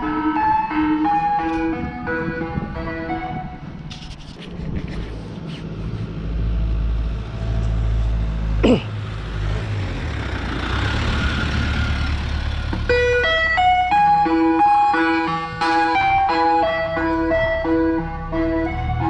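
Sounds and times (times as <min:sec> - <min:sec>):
van engine driving past: 0:05.7 - 0:14.7.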